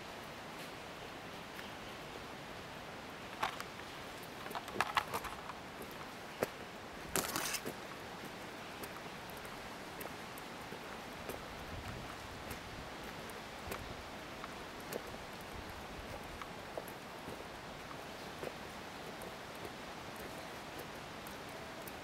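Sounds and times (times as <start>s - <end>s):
crackles and clicks: 3.2s - 7.8s.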